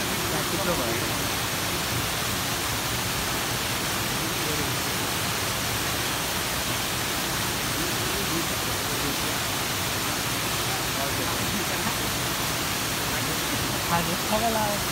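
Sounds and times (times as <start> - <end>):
waterfall rushing: 0.0 - 14.9
faint voices: 7.5 - 14.9.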